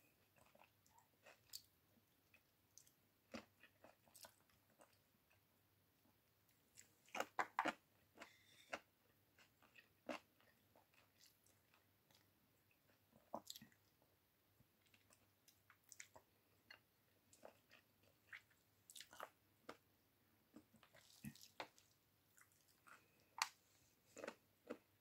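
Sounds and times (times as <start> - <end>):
chewing and lip smacks: 14.8 - 19.8.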